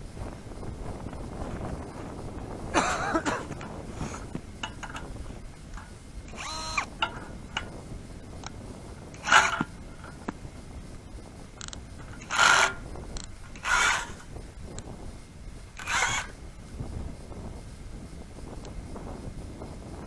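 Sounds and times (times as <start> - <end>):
gear scraping and squeaking: 3.6 - 7.8, 9.0 - 10.3, 11.6 - 14.4, 15.8 - 16.4.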